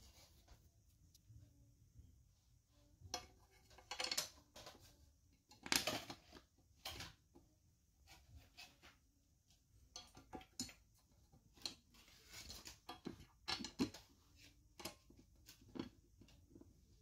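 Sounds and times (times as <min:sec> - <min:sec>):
small metal clicks: 0:03.1 - 0:04.8.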